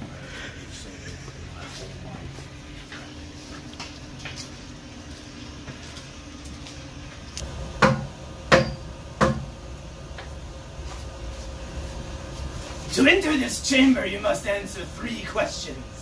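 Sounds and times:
background hum: 0.0s - 16.0s.

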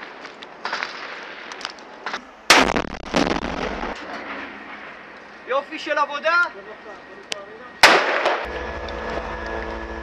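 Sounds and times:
explosion blast with deep rumble: 2.5s - 4.0s
gunfire cracks: 2.5s - 4.0s, 7.8s - 8.5s.

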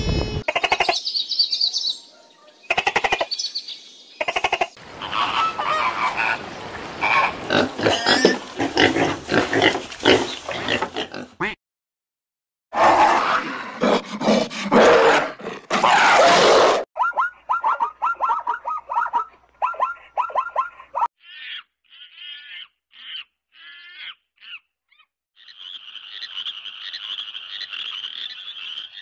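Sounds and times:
pigs grunting and squealing: 7.0s - 11.6s, 12.8s - 16.8s
koalas calling: 17.0s - 24.7s.

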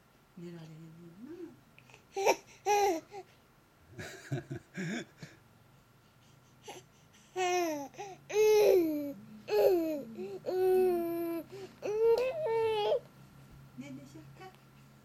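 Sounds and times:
baby laughing and babbling: 2.1s - 3.3s, 6.7s - 13.0s
baby whining: 2.1s - 3.3s, 6.6s - 13.1s.

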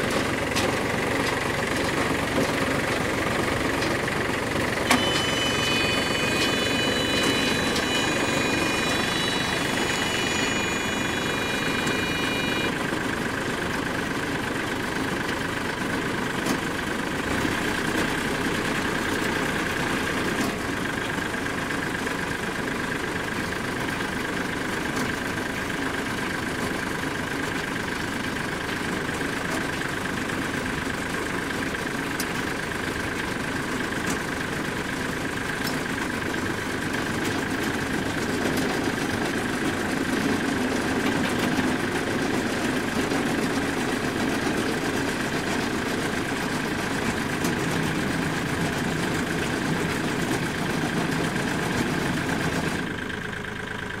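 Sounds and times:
high machine whine: 0.0s - 14.0s
tractor engine running: 0.0s - 54.0s.

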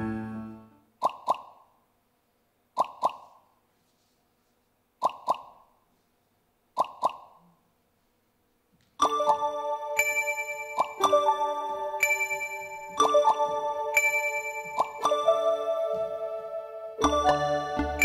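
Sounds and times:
mallet percussion music: 9.0s - 18.0s.

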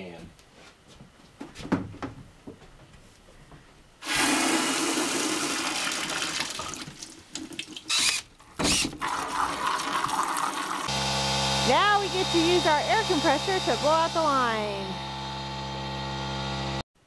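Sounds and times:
water gushing into plastic bucket: 4.0s - 10.9s.

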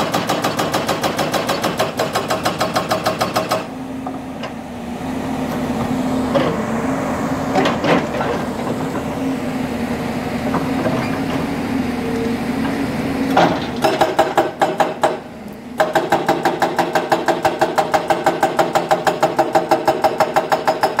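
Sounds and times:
hydraulic breaker hammering rock: 0.0s - 4.2s, 13.3s - 21.0s
excavator engine running: 0.0s - 20.9s.

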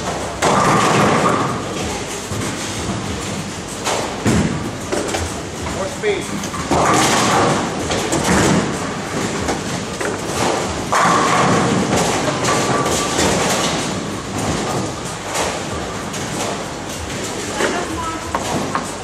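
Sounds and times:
ball crashing into pins: 0.0s - 1.6s, 6.6s - 16.6s
bowling ball rolling: 0.0s - 19.0s
bowling lanes clatter and rumble: 0.0s - 19.0s.

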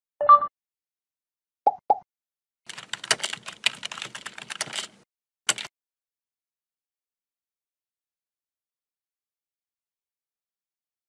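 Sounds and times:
rapid irregular clicking: 2.7s - 5.7s.

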